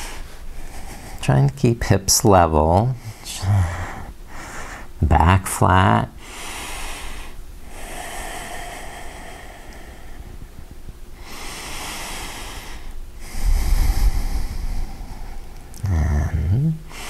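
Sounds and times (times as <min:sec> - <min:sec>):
man breathing through the nose: 0:00.0 - 0:01.2, 0:03.0 - 0:05.0, 0:06.2 - 0:10.5, 0:11.2 - 0:15.8
low rumble: 0:13.2 - 0:16.6.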